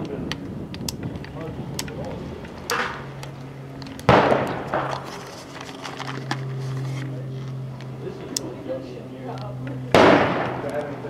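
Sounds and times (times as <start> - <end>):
gunshots with echo: 4.1 - 5.0, 9.9 - 10.7.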